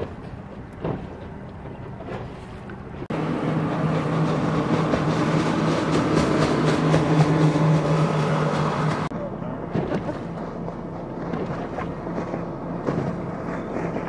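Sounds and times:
outboard motors at high speed: 0:00.0 - 0:14.0
water hissing off hull: 0:00.0 - 0:14.0.

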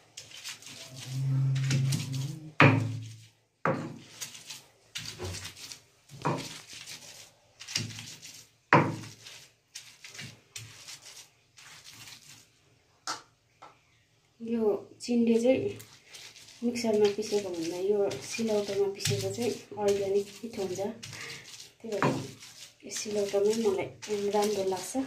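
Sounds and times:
stone roller knocking and grinding: 0:01.0 - 0:03.1, 0:08.7 - 0:09.1, 0:21.9 - 0:25.0.

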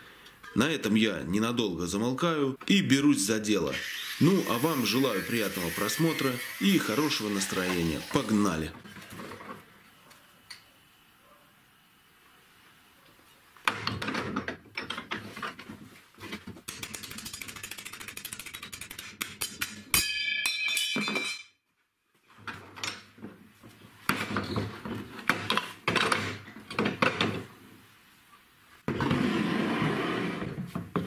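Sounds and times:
metallic ringing: 0:19.9 - 0:21.6.

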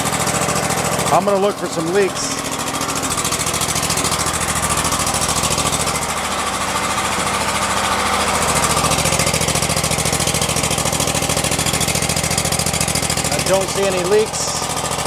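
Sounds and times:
mower engine idling: 0:00.0 - 0:15.0.

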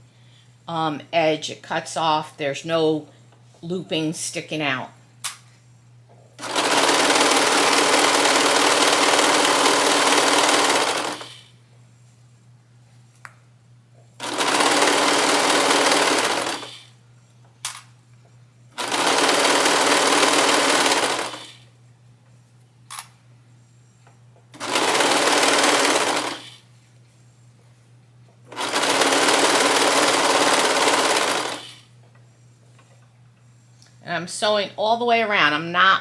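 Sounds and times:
overlock machine stitching: 0:06.4 - 0:11.5, 0:14.2 - 0:16.9, 0:18.8 - 0:21.6, 0:24.5 - 0:26.6, 0:28.5 - 0:31.8.

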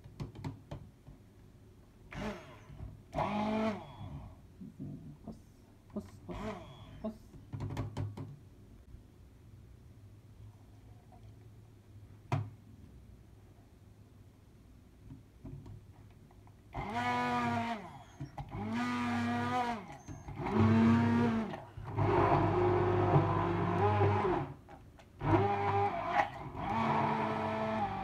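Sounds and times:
stick blender motor whine: 0:02.1 - 0:04.3, 0:16.8 - 0:24.6, 0:25.2 - 0:28.0.

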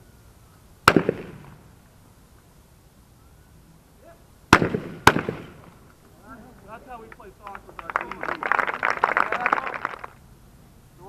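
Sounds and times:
shotgun shot: 0:00.8 - 0:01.6, 0:04.5 - 0:05.7.

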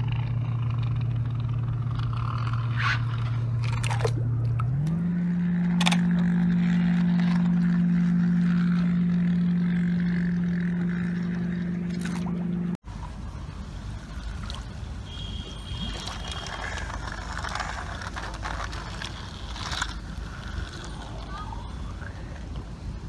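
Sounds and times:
wheels clicking on track: 0:15.4 - 0:23.0
toy train motor hum: 0:15.7 - 0:22.4.

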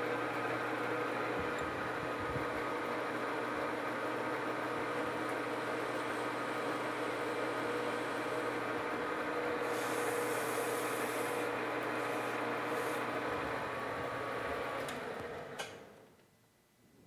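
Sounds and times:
metal lathe humming: 0:00.0 - 0:15.7.

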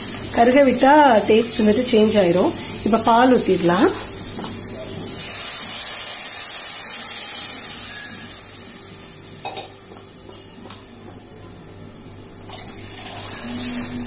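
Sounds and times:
liquid sizzling in hot oil: 0:00.0 - 0:10.5, 0:12.2 - 0:14.0.

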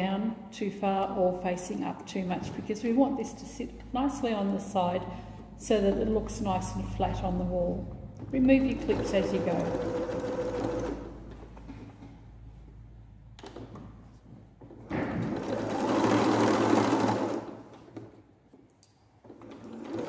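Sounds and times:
electric sewing machine stitching: 0:08.3 - 0:11.2, 0:15.4 - 0:17.6, 0:19.4 - 0:20.0.

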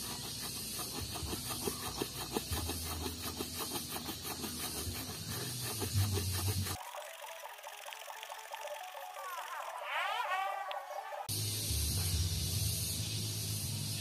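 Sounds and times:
coconut rasping on stone: 0:00.0 - 0:06.8.

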